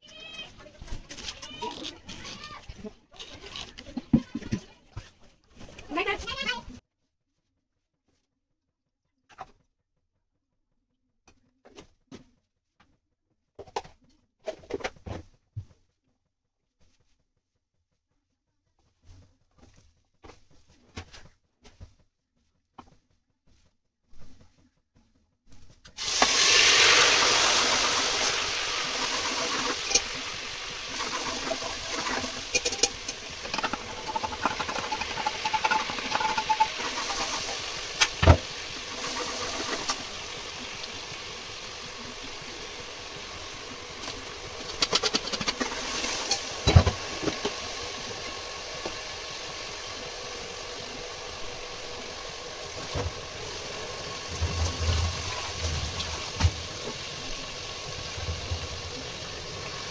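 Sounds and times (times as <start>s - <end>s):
food sizzling in a pot: 26.0s - 59.9s
metal ladle scraping a pot: 29.0s - 38.2s, 44.8s - 46.8s.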